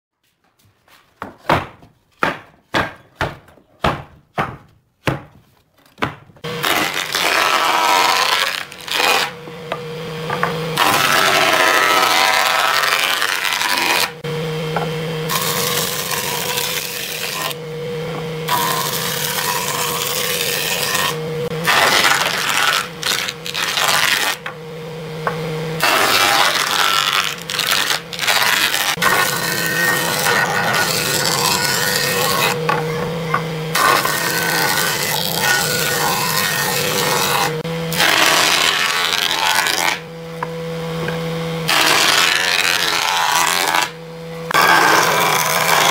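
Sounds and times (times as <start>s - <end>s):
wooden board being planed: 0.8s - 45.9s
sharp knocks: 1.2s - 5.4s, 6.0s - 6.4s
jointer motor hum: 6.4s - 45.9s.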